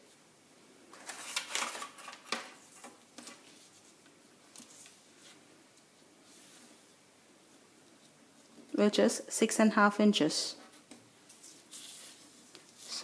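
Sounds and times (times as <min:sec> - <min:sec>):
measuring tape rustling on paper: 0:10.5 - 0:13.0.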